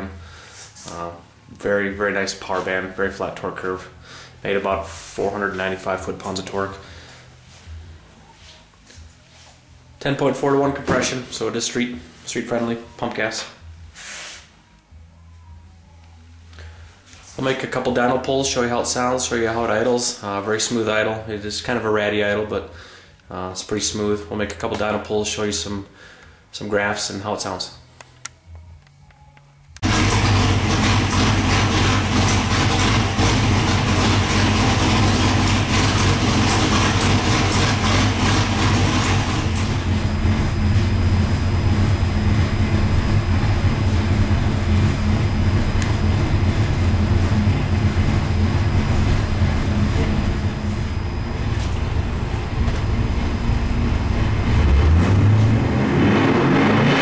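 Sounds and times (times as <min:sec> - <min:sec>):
engine idling loudly: 0:29.8 - 0:56.9.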